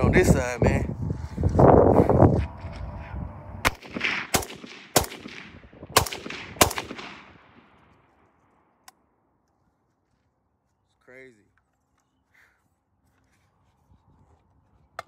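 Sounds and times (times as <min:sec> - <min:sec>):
loud pistol shots with echo: 0:03.6 - 0:07.6.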